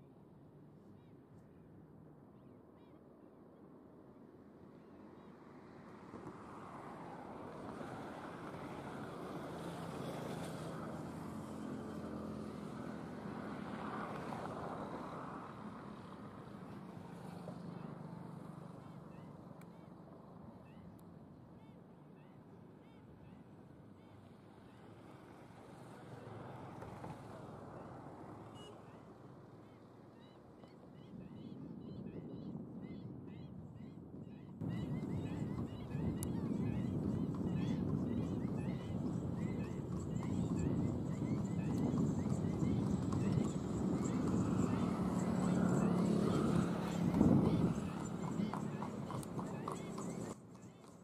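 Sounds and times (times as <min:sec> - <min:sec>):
distant engine hum: 0:04.6 - 0:51.0
faint high chirp: 0:28.5 - 0:29.0
distant vehicle passing: 0:34.6 - 0:51.0.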